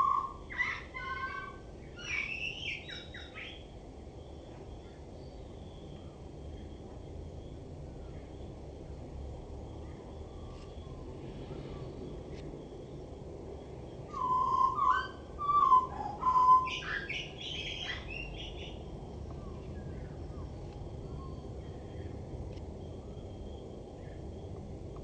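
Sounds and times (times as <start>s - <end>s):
blackbird singing: 0.0s - 3.7s, 14.1s - 18.8s.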